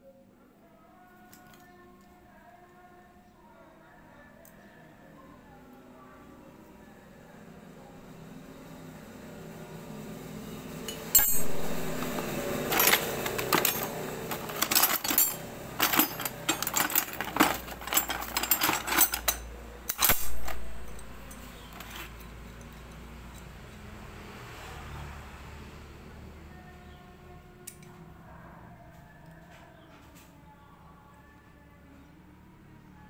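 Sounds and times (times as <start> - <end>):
metal parts and tools clattering: 10.9 - 23.7.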